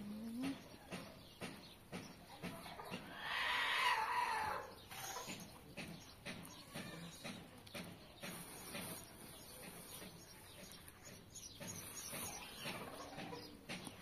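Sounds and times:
farm animal long call: 3.1 - 4.7.

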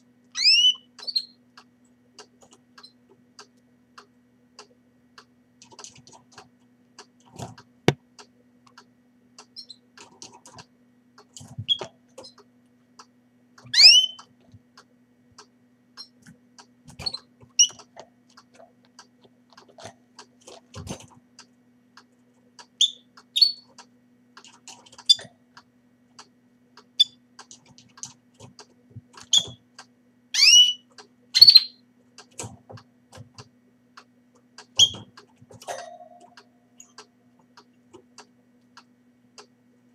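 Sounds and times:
faint steady hum: 0.0 - 39.9
canaries chirping: 0.4 - 1.4, 13.7 - 14.3, 22.8 - 23.7, 30.4 - 31.8.

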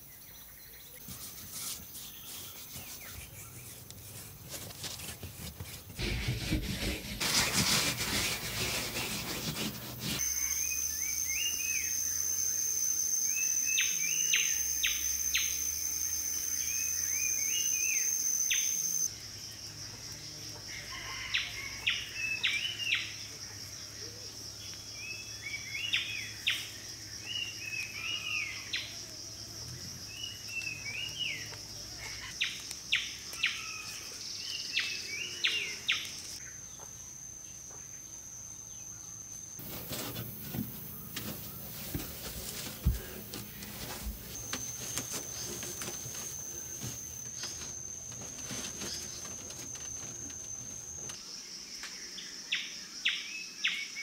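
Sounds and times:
rasping rub: 1.0 - 10.5, 39.6 - 50.2
high-pitched insect drone: 10.2 - 22.1.

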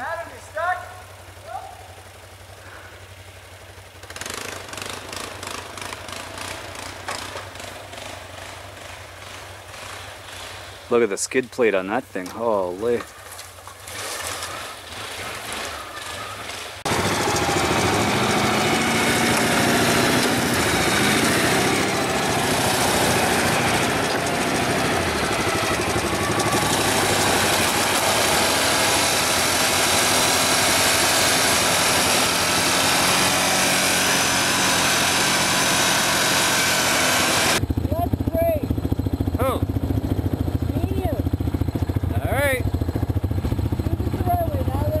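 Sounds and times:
atv engine running: 0.0 - 45.0.

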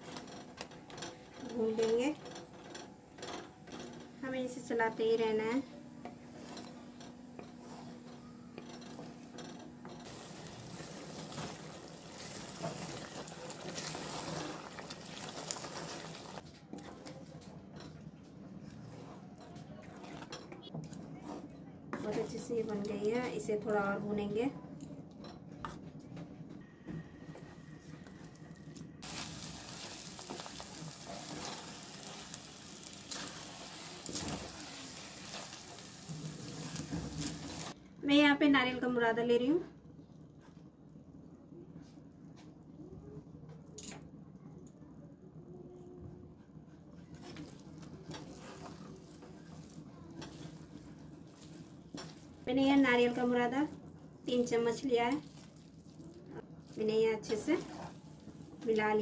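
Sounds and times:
food sizzling in a pan: 10.1 - 16.4, 29.0 - 37.8
wooden spatula scraping pan: 47.2 - 52.4, 57.2 - 58.8
wooden spatula scraping metal pan: 57.2 - 58.0.

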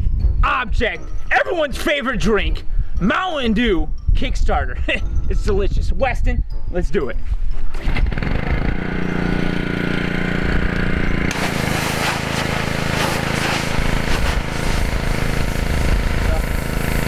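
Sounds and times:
pressure washer engine running: 8.1 - 17.0
water jet spraying on can: 11.3 - 16.6.

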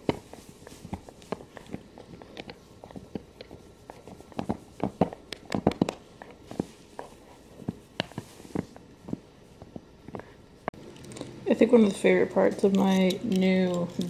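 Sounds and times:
hand petting dog fur: 0.0 - 10.2.

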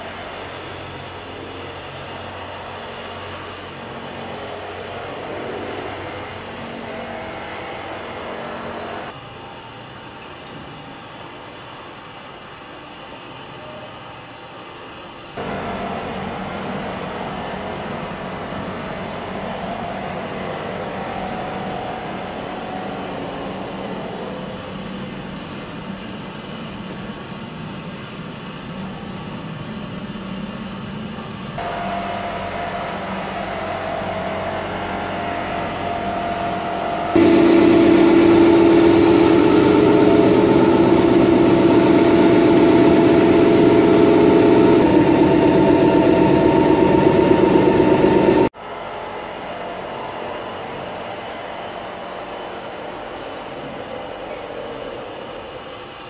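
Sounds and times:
refrigeration compressor humming: 31.9 - 48.5.

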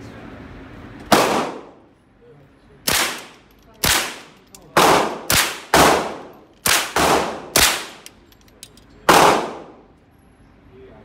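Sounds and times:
gunshot echo: 1.1 - 1.8, 2.9 - 8.0, 9.1 - 9.8
rifle shots: 1.1 - 1.8, 2.9 - 8.1, 9.1 - 9.8.

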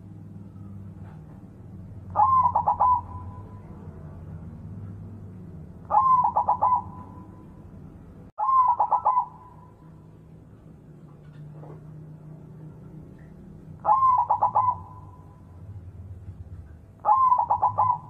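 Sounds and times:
low steady hum: 0.0 - 18.0
dove cooing: 2.1 - 4.0, 5.9 - 7.5, 8.4 - 9.8, 13.8 - 15.5, 17.0 - 18.0.

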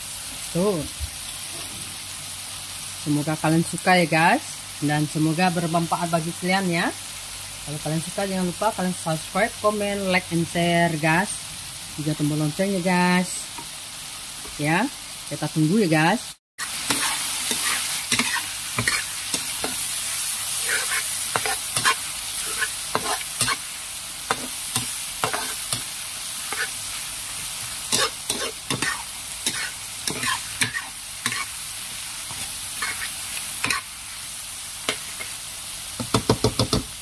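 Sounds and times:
food sizzling in oil: 0.0 - 37.0
metal spatula scraping wok: 16.6 - 19.9, 20.5 - 23.7, 24.3 - 26.9, 27.9 - 31.6, 32.3 - 33.9.

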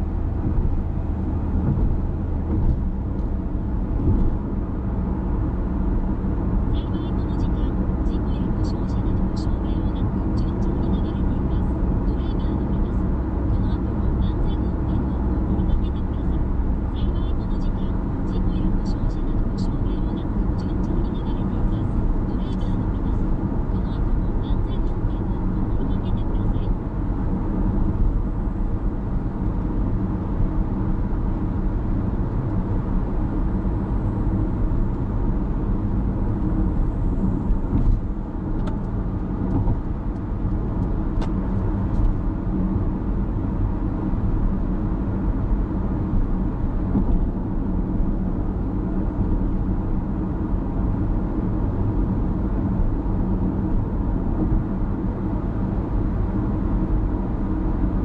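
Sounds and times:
tyre and road noise: 0.0 - 6.7, 20.2 - 58.0
car engine drone: 0.0 - 58.0.

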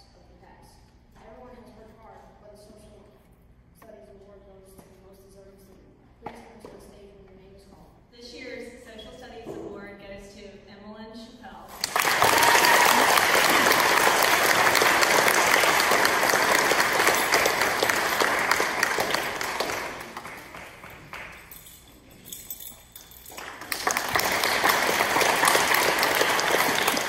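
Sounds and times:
audience applauding: 11.8 - 21.5, 23.4 - 27.0.

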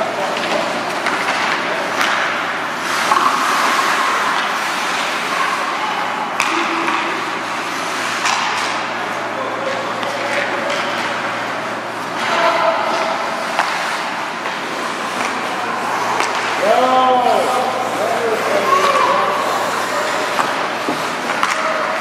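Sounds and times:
skates scraping ice: 2.8 - 5.7, 12.2 - 21.9
faint voices: 8.7 - 22.0.

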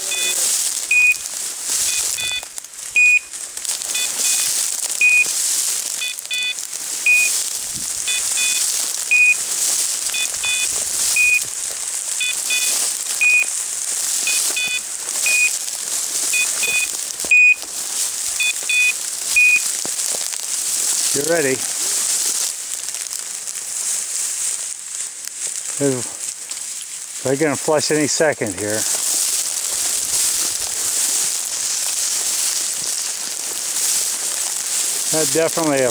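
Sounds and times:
steady hiss: 0.0 - 35.9
quick double beeps: 0.1 - 1.2, 1.9 - 2.4, 3.0 - 3.3, 4.0 - 5.3, 6.0 - 7.3, 8.1 - 9.4, 10.1 - 11.4, 12.2 - 13.5, 14.3 - 15.5, 16.4 - 17.6, 18.4 - 19.6
short beeps: 0.1 - 1.2, 1.8 - 2.4, 3.0 - 3.3, 4.0 - 5.3, 6.0 - 7.3, 8.1 - 9.4, 10.1 - 11.4, 12.2 - 13.5, 14.3 - 15.6, 16.3 - 17.6, 18.4 - 19.6.

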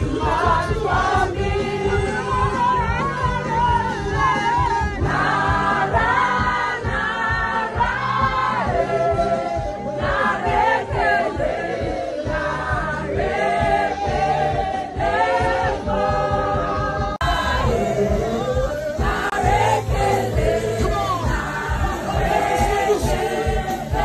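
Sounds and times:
crowd singing together: 0.0 - 24.0
low steady beat: 8.6 - 24.0.

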